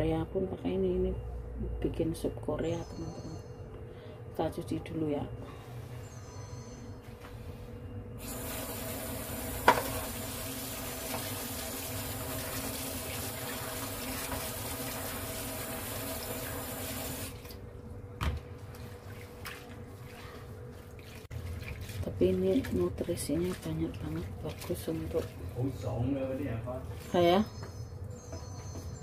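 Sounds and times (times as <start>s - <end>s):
tap water running into bowl: 8.2s - 17.4s.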